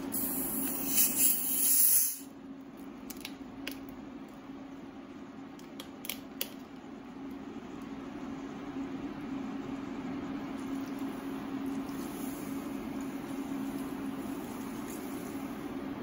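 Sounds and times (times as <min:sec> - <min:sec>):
loud hiss: 0:00.0 - 0:02.3
cooktop humming: 0:00.0 - 0:16.0.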